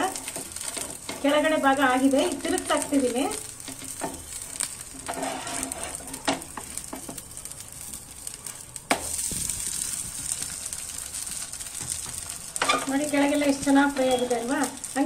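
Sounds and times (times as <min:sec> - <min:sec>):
batter sizzling in oil: 0:00.0 - 0:15.0
spatula clicking and scraping: 0:03.6 - 0:07.2.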